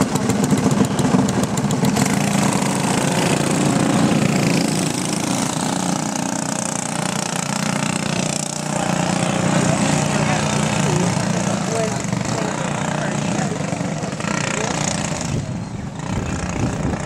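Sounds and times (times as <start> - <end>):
go-kart engines revving: 0.0 - 17.0.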